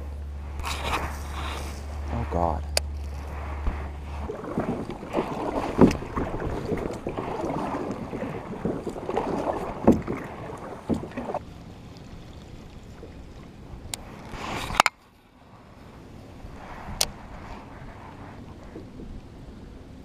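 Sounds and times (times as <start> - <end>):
paddle strokes splashing: 0.4 - 14.9.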